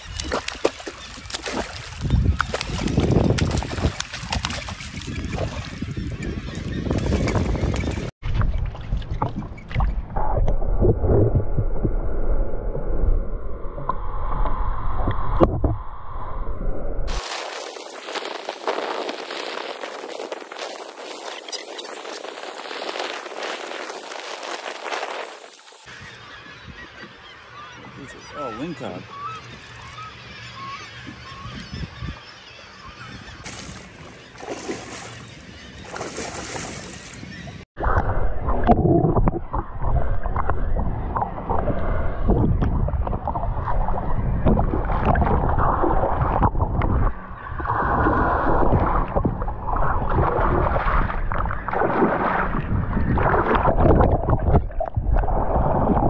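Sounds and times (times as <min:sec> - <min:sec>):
fish thrashing and splashing: 0:00.0 - 0:05.8, 0:33.4 - 0:37.3.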